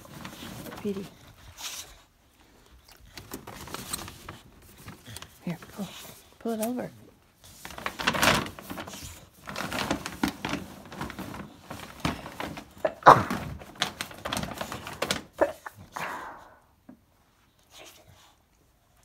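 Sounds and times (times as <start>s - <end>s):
paper bag crinkling: 0.0s - 2.0s, 3.0s - 15.9s.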